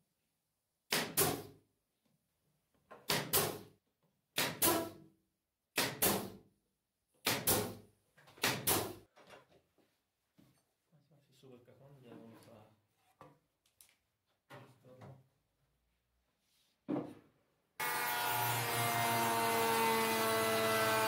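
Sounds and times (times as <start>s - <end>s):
nail gun firing: 0.9s - 1.5s, 3.0s - 3.7s, 4.4s - 5.0s, 5.7s - 6.4s, 7.2s - 7.8s, 8.4s - 9.0s.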